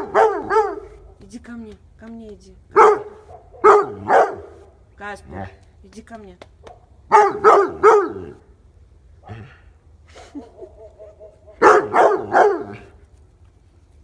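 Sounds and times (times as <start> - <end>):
dog barking: 0.0 - 1.2, 2.8 - 4.8, 6.7 - 8.4, 10.4 - 12.9.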